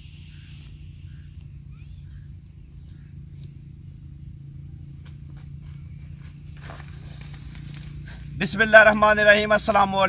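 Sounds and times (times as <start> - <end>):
faint bird chirps: 0.0 - 4.0
continuous low hum: 0.0 - 10.0
crickets chirping: 0.0 - 10.0.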